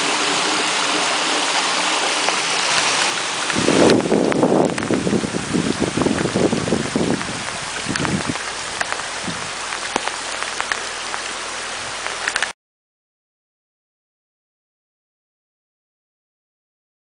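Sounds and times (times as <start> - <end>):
heavy rain on wet ground: 0.0 - 12.6.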